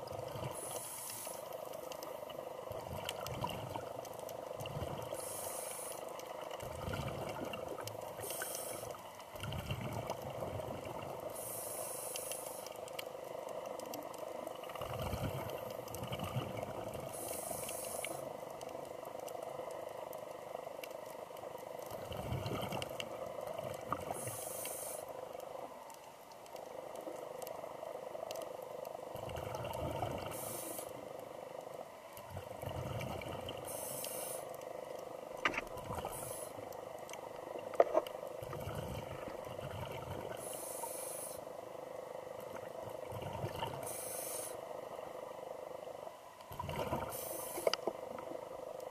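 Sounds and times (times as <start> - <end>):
exhaled air bubbling: 0.0 - 12.7, 13.8 - 19.1, 21.6 - 25.1, 29.1 - 31.4, 32.1 - 41.4, 42.2 - 44.6, 46.5 - 48.9
steady hum: 0.0 - 48.9
regulator inhalation hiss: 0.5 - 1.6, 5.2 - 6.1, 8.2 - 9.0, 11.3 - 12.8, 17.1 - 18.4, 24.2 - 25.2, 30.3 - 31.0, 33.7 - 34.5, 36.0 - 36.6, 40.4 - 41.5, 43.8 - 44.7, 47.0 - 47.8.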